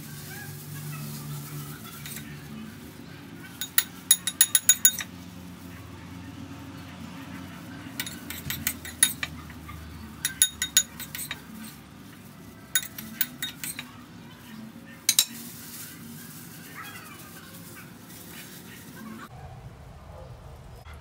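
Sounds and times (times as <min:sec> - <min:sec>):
metal spoon scraping ceramic bowl: 0:02.0 - 0:02.3, 0:03.6 - 0:05.1, 0:08.0 - 0:09.6, 0:10.2 - 0:11.8, 0:12.8 - 0:13.9, 0:15.1 - 0:15.4.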